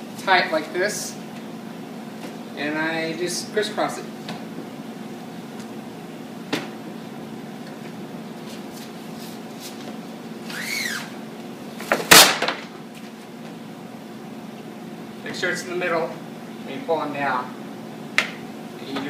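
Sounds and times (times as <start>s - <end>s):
steady low hum: 0.0s - 19.0s
squeegee on vinyl wrap: 8.5s - 11.1s
vinyl sheet tearing off: 10.4s - 11.1s, 11.9s - 12.6s.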